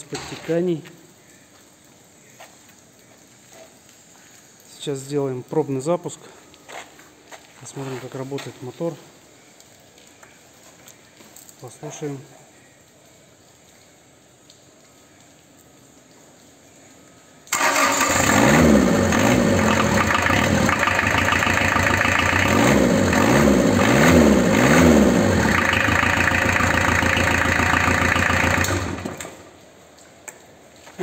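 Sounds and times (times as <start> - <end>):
diesel engine starting and revving: 17.5 - 29.5.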